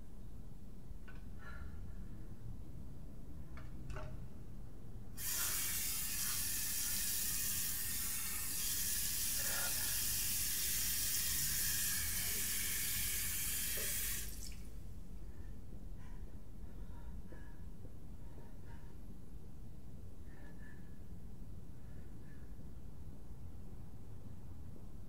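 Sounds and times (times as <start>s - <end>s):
tap water pouring into sink: 10.0s - 14.6s.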